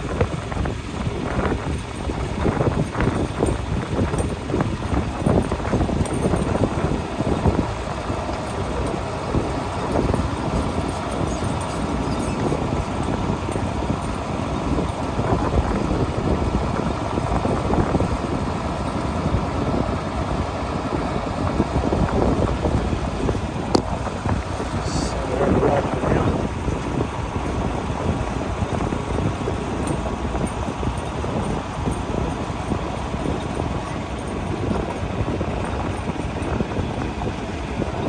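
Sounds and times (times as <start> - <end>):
tractor engine running: 0.0 - 38.0.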